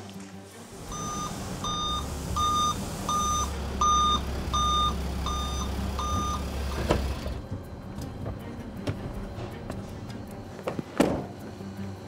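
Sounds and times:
reversing alarm beeping: 0.8s - 7.4s.

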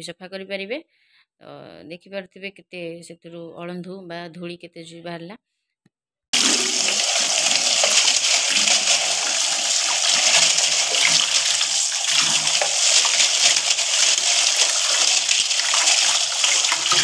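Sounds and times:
tap water splashing into basin: 6.4s - 17.0s.

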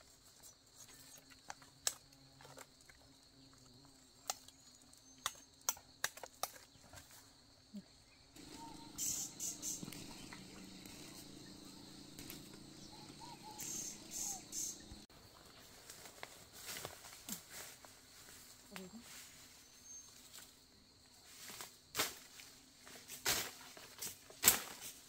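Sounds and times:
crickets droning: 0.0s - 25.0s
sharp snaps and clicks: 5.2s - 6.6s, 12.2s - 12.6s
short high hissing bursts: 8.5s - 10.0s, 13.5s - 14.8s.

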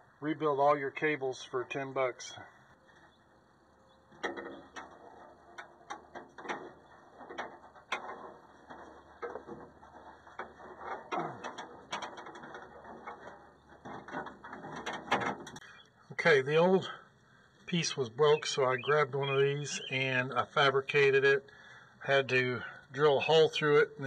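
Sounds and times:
metal clicks and rattles: 4.1s - 15.6s.

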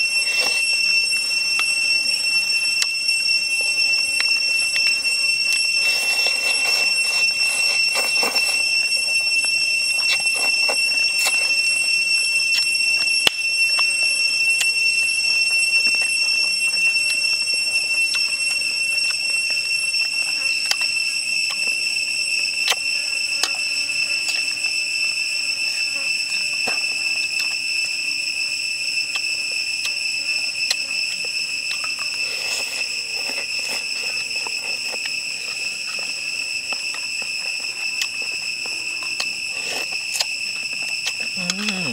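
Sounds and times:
person slurping and chewing soup: 0.0s - 0.9s, 4.3s - 9.2s, 31.7s - 36.1s, 36.9s - 41.9s
high-pitched insect drone: 0.0s - 41.9s.

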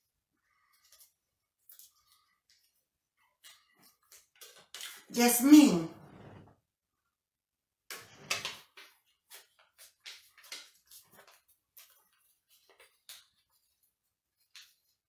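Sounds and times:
paper rustling and crinkling: 8.3s - 15.0s.

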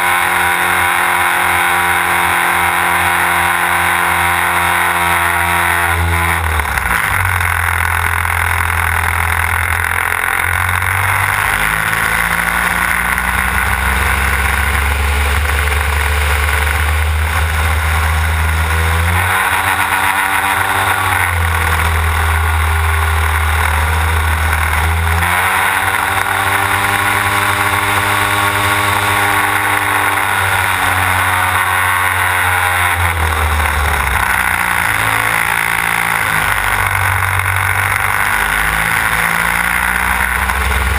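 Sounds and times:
model plane engine and propeller: 0.0s - 40.9s.

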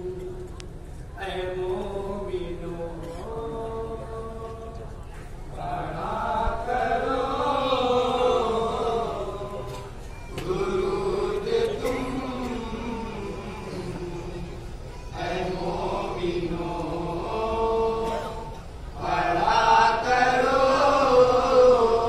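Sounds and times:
men chanting devotional poem: 5.5s - 22.0s.

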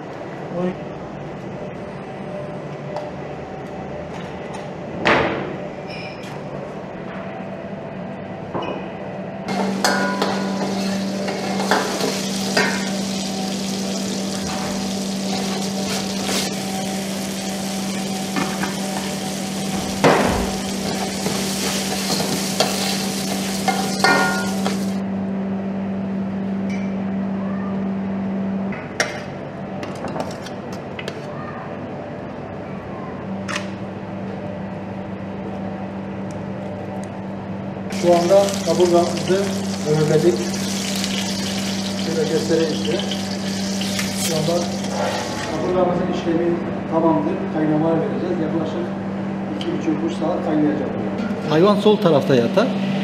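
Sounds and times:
stuffing sizzling in a pot: 37.9s - 45.6s.

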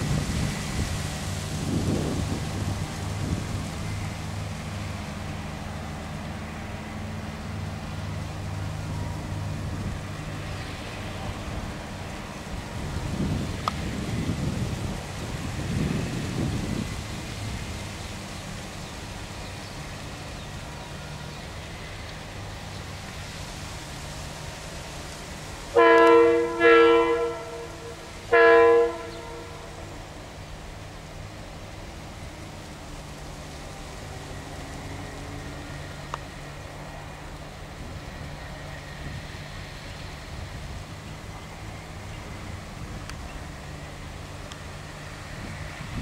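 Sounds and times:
distant locomotive engine hum: 0.0s - 46.0s
steady hiss: 0.0s - 46.0s
locomotive horn blasts: 25.7s - 30.2s.

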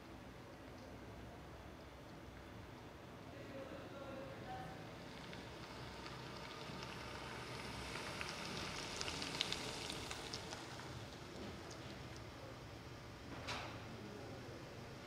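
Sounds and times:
steady hiss: 1.2s - 15.0s
light clicks and crackles: 5.0s - 12.3s.

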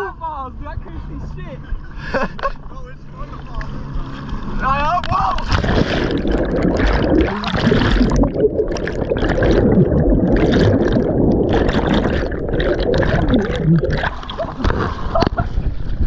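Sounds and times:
muffled underwater bubbling: 5.0s - 15.4s.

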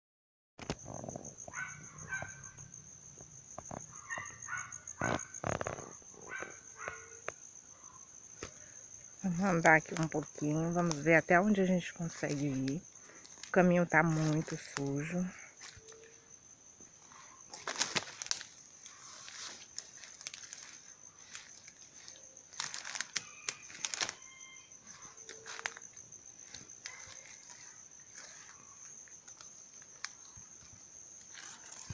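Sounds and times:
pulsing insect trill: 0.6s - 31.9s
twigs crackling: 8.4s - 16.3s, 17.0s - 31.9s
brushing past undergrowth: 9.4s - 16.2s, 16.9s - 31.9s
rustling: 17.0s - 31.9s
footsteps through dry leaves: 17.5s - 28.7s.

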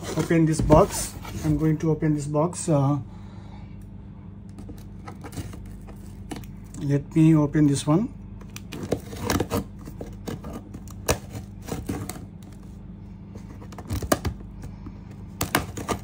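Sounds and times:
scissors cutting packing tape: 8.5s - 12.2s, 15.4s - 16.0s.

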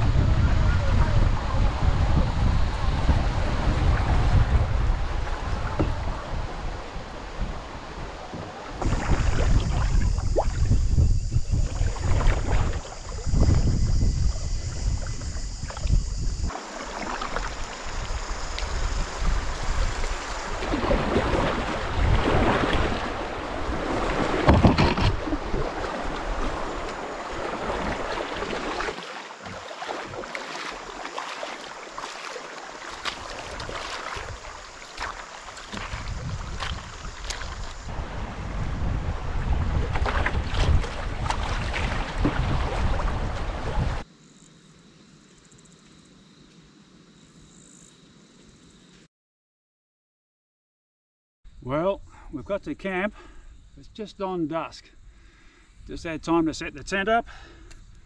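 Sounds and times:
wind buffeting microphone: 0.0s - 16.5s, 17.7s - 28.6s, 35.7s - 44.0s
river water splashing around canoe: 0.6s - 44.1s
feet wading through water: 2.6s - 38.2s, 39.1s - 44.0s.

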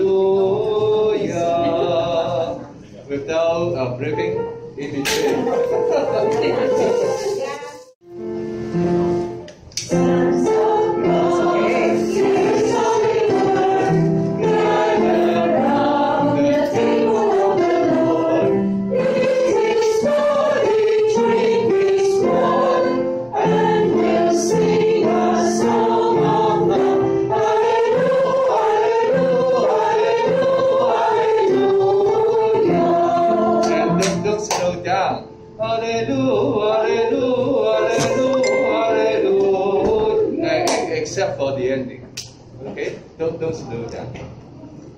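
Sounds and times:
choir singing: 0.0s - 2.8s, 5.1s - 7.9s, 9.9s - 34.4s, 35.6s - 41.0s.

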